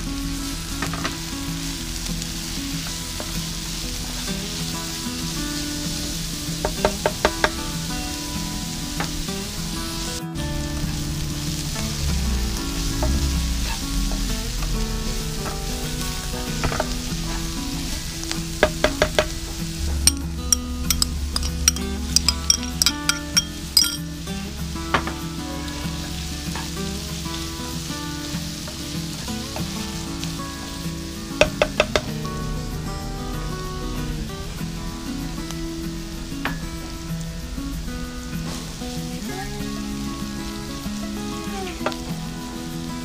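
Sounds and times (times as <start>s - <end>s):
background music: 0.0s - 43.0s
vegetables sizzling in a frying pan: 0.0s - 43.0s.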